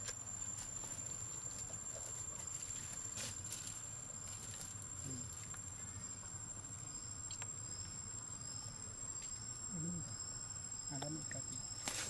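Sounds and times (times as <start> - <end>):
high-pitched insect whine: 0.0 - 12.0
pulsing insect call: 0.0 - 12.0.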